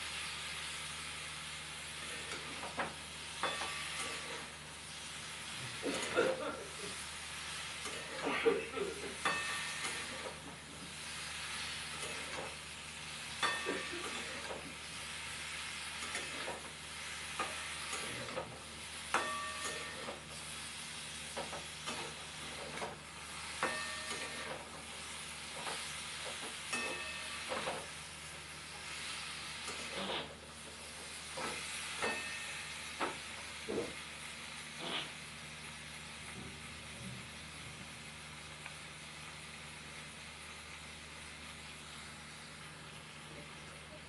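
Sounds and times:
food sizzling in oil: 0.0 - 8.2, 8.8 - 43.8
metal spatula scraping wok: 29.9 - 30.3.

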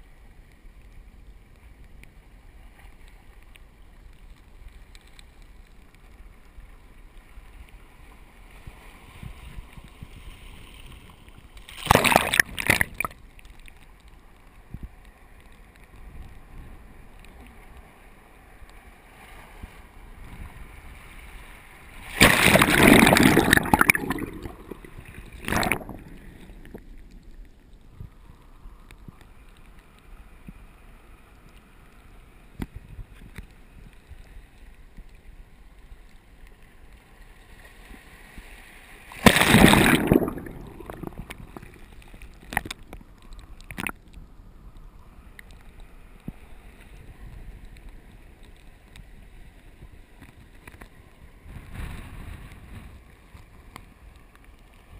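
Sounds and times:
low wash of water: 6.1 - 13.8, 14.6 - 54.9
surf splashing surges: 7.1 - 13.2, 15.1 - 27.4, 36.9 - 44.0.

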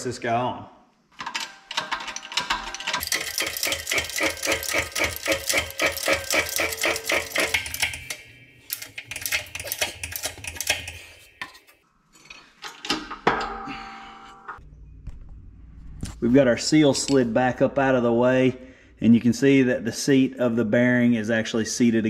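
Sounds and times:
hydraulic press pump clicking: 1.2 - 11.6
metal clunk with ringing: 12.2 - 14.6.

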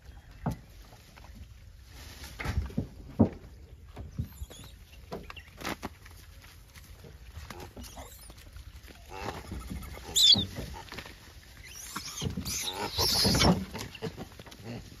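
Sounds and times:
monkeys tapping and scuffling: 2.7 - 14.8
monkey rough calls: 9.1 - 10.5, 11.6 - 14.1
monkey high squeal: 9.6 - 10.5, 11.6 - 13.6.

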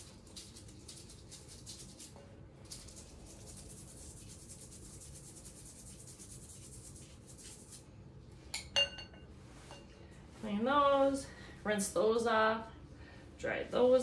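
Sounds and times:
brush scrubbing dentures: 0.0 - 7.9.

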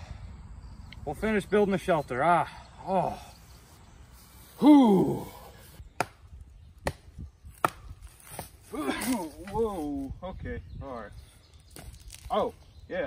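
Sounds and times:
sharp knocks of logs handled: 5.9 - 9.6, 11.7 - 12.3.

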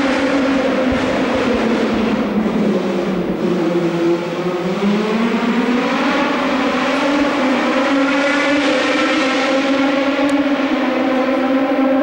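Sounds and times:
race car engine at high revs: 0.0 - 12.0.

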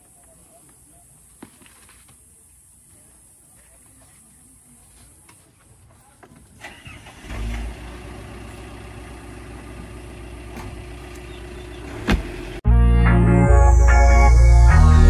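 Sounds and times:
car engine starting and idling: 6.5 - 12.6.

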